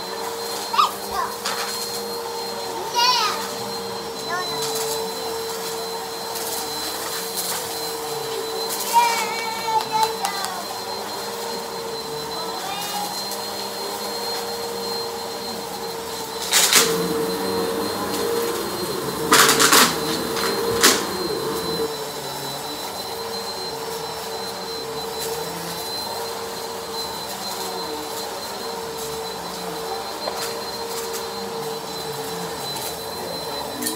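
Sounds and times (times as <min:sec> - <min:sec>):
vacuum cleaner motor whine: 0:00.0 - 0:33.9
debris rattling in vacuum: 0:16.5 - 0:21.9.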